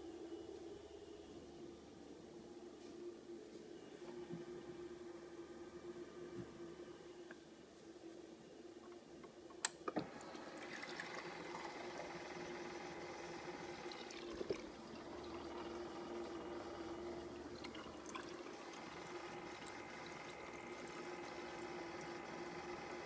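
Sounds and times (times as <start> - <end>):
constant hum: 0.0 - 23.0
water pouring into glass: 17.5 - 19.8.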